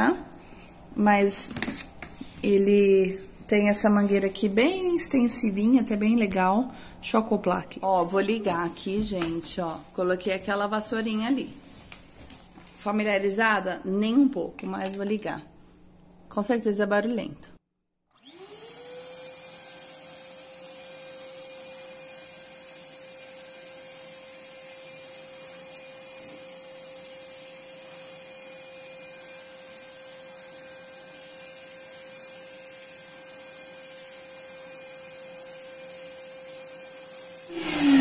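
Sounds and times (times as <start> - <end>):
vacuum cleaner running: 18.1 - 38.0.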